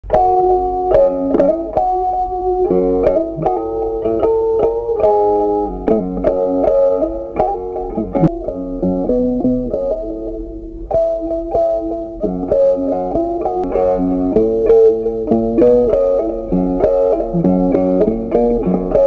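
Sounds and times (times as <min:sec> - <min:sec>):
plucked string melody: 0:00.0 - 0:19.0.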